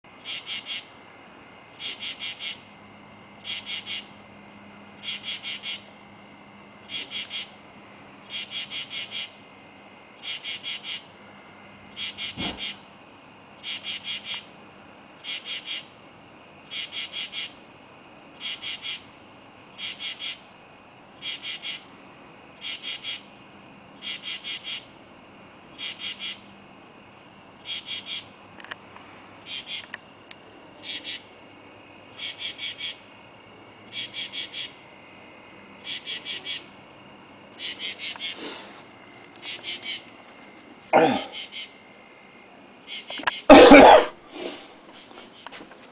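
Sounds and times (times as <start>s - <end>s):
high insect chorus: 0.1s - 45.9s
katydid rasping calls: 0.2s - 0.9s, 1.8s - 2.7s, 3.4s - 4.2s, 5.0s - 5.9s, 6.9s - 7.6s, 8.3s - 9.4s, 10.2s - 11.1s, 12.0s - 12.8s, 16.7s - 17.5s, 25.8s - 26.4s, 27.6s - 28.3s, 29.5s - 29.9s, 30.8s - 31.3s, 32.2s - 33.0s, 33.9s - 34.8s, 35.8s - 36.7s, 37.6s - 38.6s, 39.4s - 40.1s, 41.0s - 41.8s, 42.9s - 44.6s.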